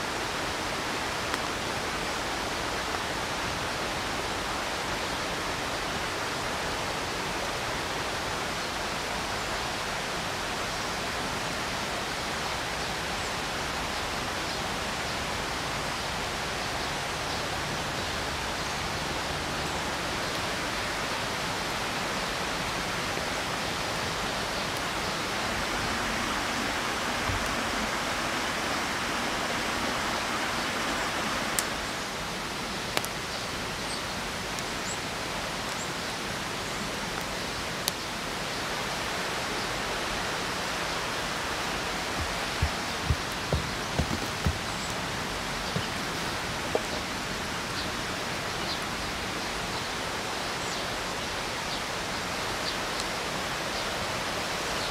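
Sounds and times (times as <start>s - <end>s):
stream flowing: 0.0s - 54.9s
soft knocks: 42.2s - 45.0s.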